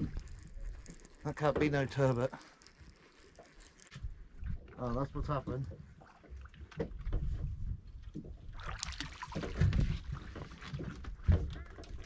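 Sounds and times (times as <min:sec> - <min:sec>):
water against the hull: 0:00.0 - 0:12.0
low wind rumble on microphone: 0:04.0 - 0:06.0, 0:06.8 - 0:08.7, 0:09.4 - 0:12.0.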